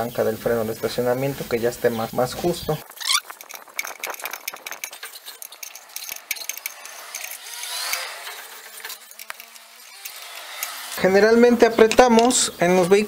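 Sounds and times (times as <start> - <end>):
metal scraping: 2.8 - 11.2
small metallic clicks: 3.0 - 11.0.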